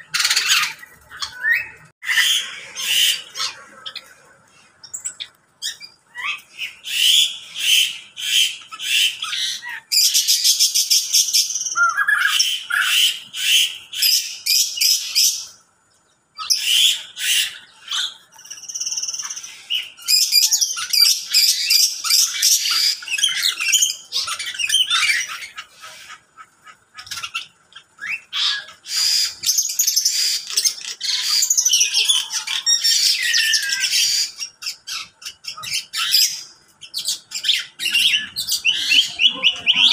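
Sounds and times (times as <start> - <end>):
small birds chattering: 0.0 - 39.9.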